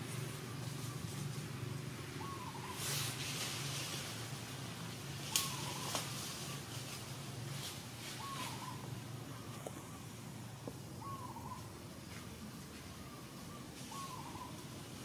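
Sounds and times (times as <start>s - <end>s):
steady low hum: 0.0s - 15.0s
bird whistled call: 5.3s - 5.9s, 13.1s - 14.6s.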